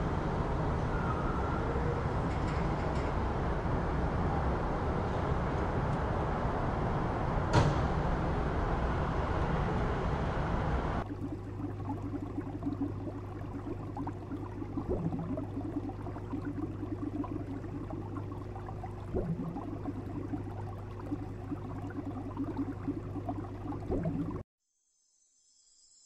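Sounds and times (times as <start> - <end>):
aquarium pump humming: 11.0 - 24.4
water bubbling: 11.0 - 24.4.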